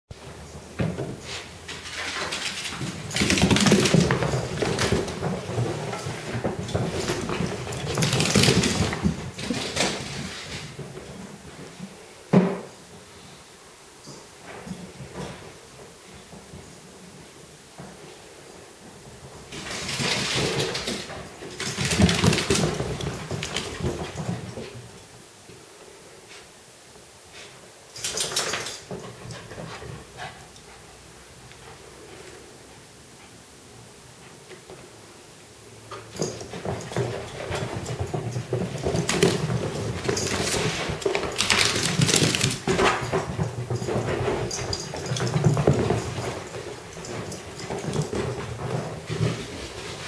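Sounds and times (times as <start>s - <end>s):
paws scrabbling on floor: 0.2s - 11.9s, 19.0s - 25.0s, 36.0s - 50.0s.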